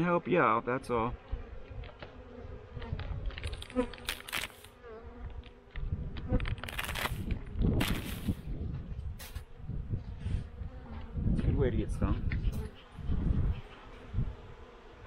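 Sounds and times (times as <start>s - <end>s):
honey bees buzzing: 0.0s - 15.0s.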